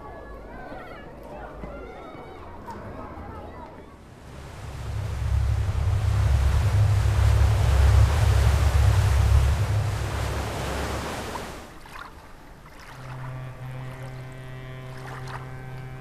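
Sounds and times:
barge engine deep rumble: 0:03.9 - 0:16.0
water rushing from bow wave: 0:04.0 - 0:16.0.

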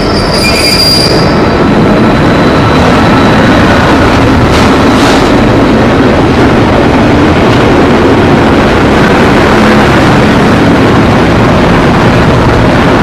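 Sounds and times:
diesel locomotive engine running: 0:00.0 - 0:13.0.

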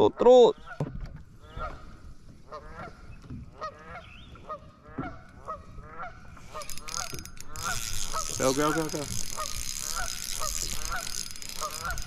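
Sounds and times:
geese honking: 0:02.4 - 0:12.0.

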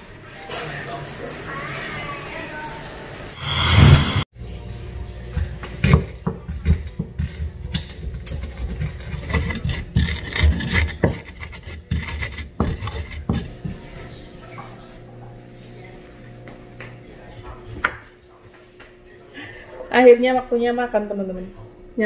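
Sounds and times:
pestle grinding in mortar: 0:05.8 - 0:13.8.

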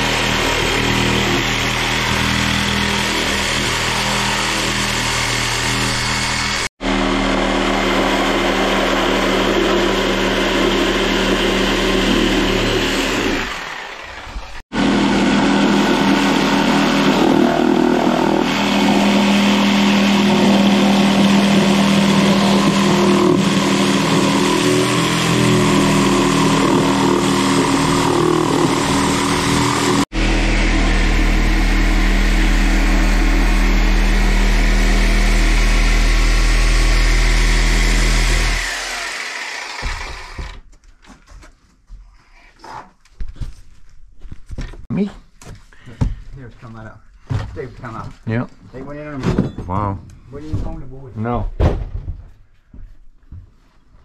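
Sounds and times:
reciprocating saw cutting: 0:00.0 - 0:40.6.

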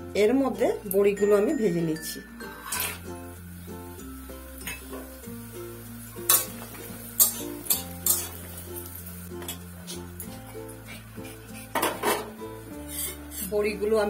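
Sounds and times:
background music: 0:00.0 - 0:14.0
oil sizzling: 0:00.0 - 0:14.0
metal spatula scraping pan: 0:02.5 - 0:03.1, 0:07.2 - 0:08.4, 0:11.2 - 0:13.6.

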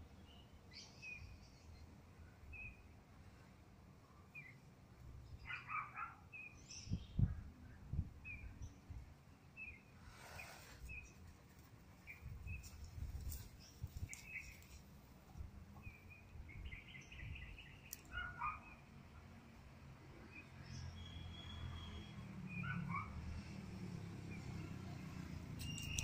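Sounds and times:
small birds chirping: 0:04.2 - 0:18.9, 0:20.2 - 0:26.0.

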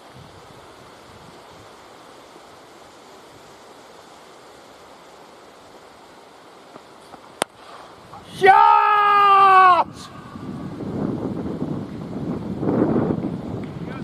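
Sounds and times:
wind noise on microphone: 0:00.0 - 0:03.6, 0:07.4 - 0:14.0.

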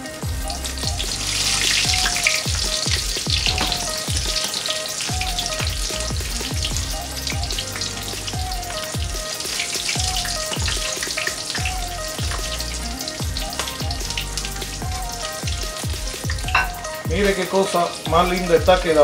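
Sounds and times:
background music with steady beat: 0:00.0 - 0:19.0
shrimp sizzling in hot oil: 0:00.0 - 0:19.0.

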